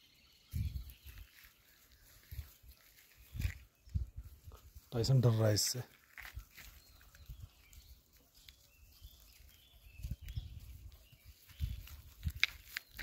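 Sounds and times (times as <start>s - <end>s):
faint bird chirps: 0.0s - 5.1s, 6.2s - 13.0s
footsteps on dirt path: 0.5s - 5.0s.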